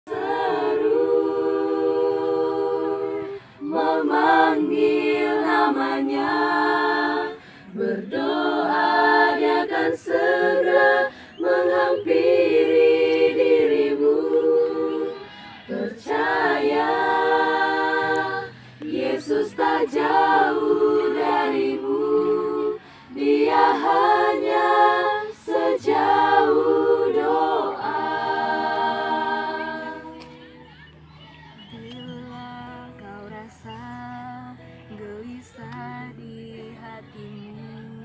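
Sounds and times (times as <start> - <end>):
women singing a cappella: 0.0 - 30.5, 31.8 - 38.0
singers breathing: 3.2 - 3.6, 7.3 - 7.8, 11.0 - 11.4, 15.2 - 15.8, 18.4 - 18.9, 22.7 - 23.2.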